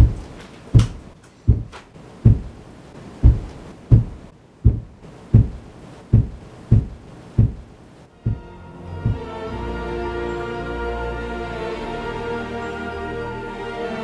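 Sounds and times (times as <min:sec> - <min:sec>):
dull low thumps: 0:00.0 - 0:09.4.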